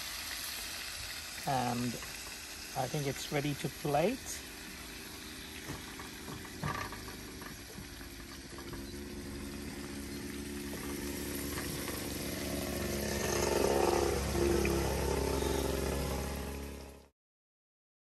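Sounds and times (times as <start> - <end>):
oil sizzling in frying pan: 0.0 - 13.2
motor engine humming: 0.8 - 17.1.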